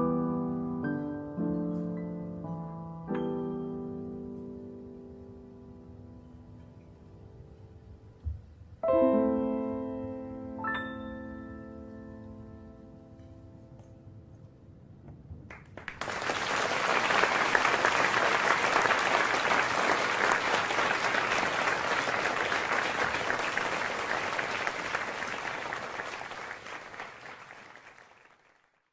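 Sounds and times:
audience applauding: 15.5s - 28.9s.

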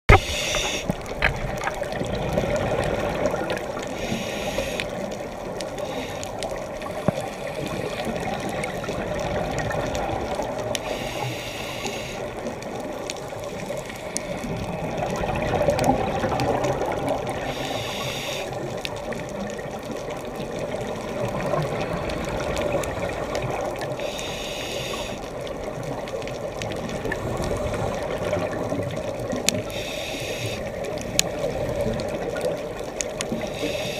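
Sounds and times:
exhaled bubbles gushing: 0.1s - 4.0s, 6.4s - 10.8s, 12.4s - 17.6s, 18.6s - 24.0s, 25.3s - 29.7s, 30.6s - 33.7s
muffled underwater water wash: 0.1s - 33.9s.

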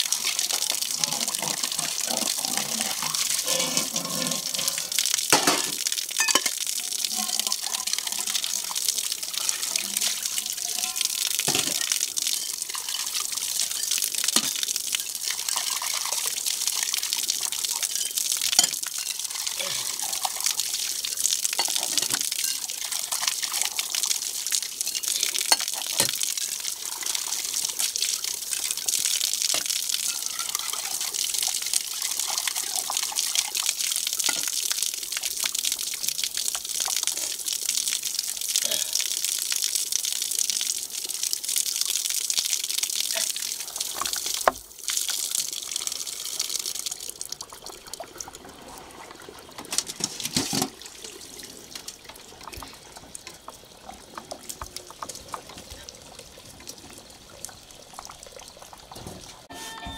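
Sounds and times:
water gushing onto concrete: 0.0s - 59.5s
metal pots clinking: 1.2s - 8.1s, 9.6s - 12.6s, 13.7s - 15.2s, 59.0s - 59.9s.

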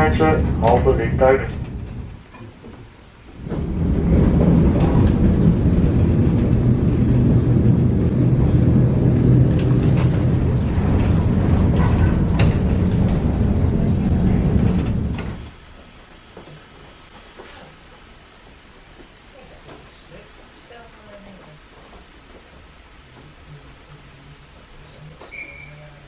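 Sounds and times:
tram wheels rumbling on rails: 0.0s - 26.0s
sharp clicks and knocks: 9.5s - 13.4s, 14.5s - 15.6s.

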